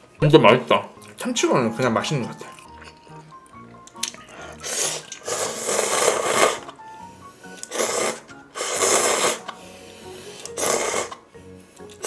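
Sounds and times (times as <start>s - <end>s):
person slurping noodles: 4.4s - 6.8s, 7.4s - 9.6s, 10.2s - 11.2s.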